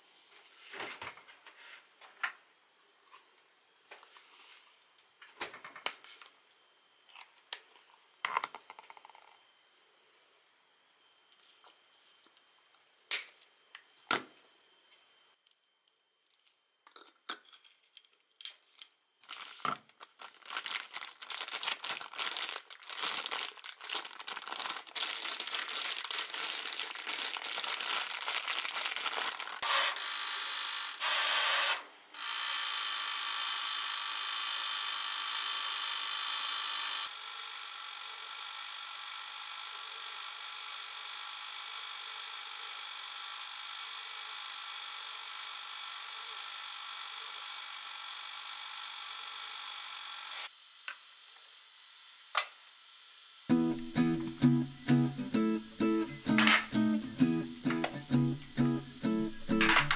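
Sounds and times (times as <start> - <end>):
plastic bag crinkling: 17.8 - 30.0
steady hum: 53.5 - 59.9.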